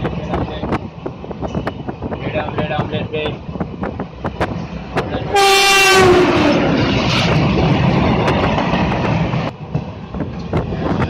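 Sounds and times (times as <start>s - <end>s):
rushing noise of passing train: 0.0s - 11.0s
train horn: 5.2s - 6.7s.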